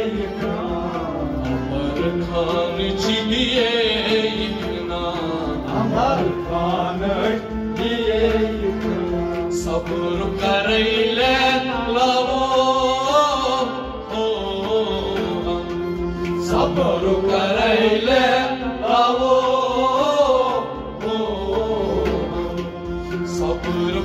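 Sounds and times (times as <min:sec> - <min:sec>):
instrumental accompaniment: 0:00.0 - 0:24.0
person singing: 0:00.0 - 0:24.0.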